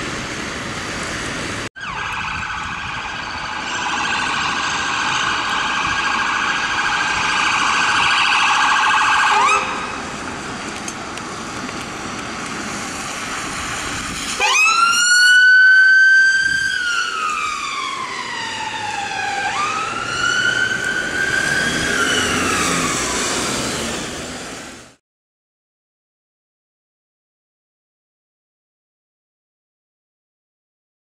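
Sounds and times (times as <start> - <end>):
vehicle passing on wet road: 0.0 - 25.0
ambulance wail siren: 1.8 - 10.3, 13.5 - 24.7.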